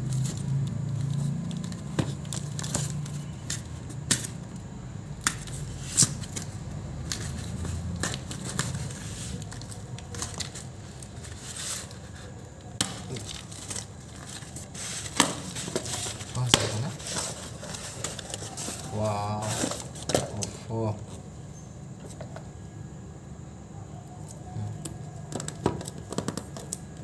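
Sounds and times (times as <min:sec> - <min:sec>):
tape and cardboard ripping: 0:00.0 - 0:04.4, 0:05.2 - 0:20.5
rustle of handling: 0:05.4 - 0:21.2.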